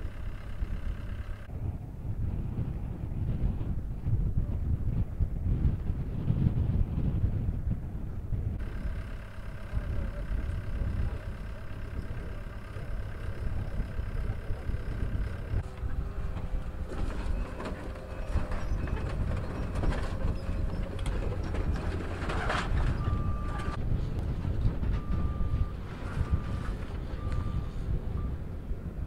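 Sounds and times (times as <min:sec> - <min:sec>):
heavy equipment engines running: 0:00.0 - 0:04.5, 0:05.4 - 0:29.0
wind noise on microphone: 0:00.0 - 0:29.0
clanks and rattles of debris: 0:15.6 - 0:27.3.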